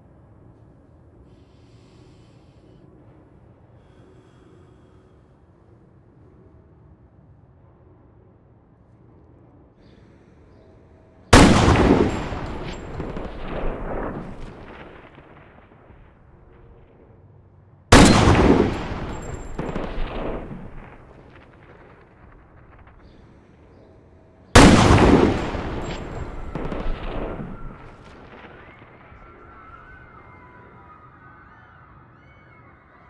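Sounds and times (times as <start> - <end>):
rifle shots with echo: 11.3 - 16.2, 17.9 - 23.0, 24.6 - 29.5.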